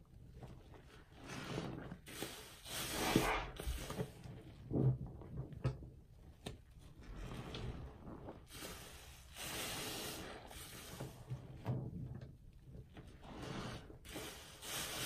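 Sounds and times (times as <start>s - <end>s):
sponge squelching in water: 0.0s - 4.7s
gush of water and foam: 1.1s - 4.2s, 7.0s - 11.6s, 13.2s - 15.0s.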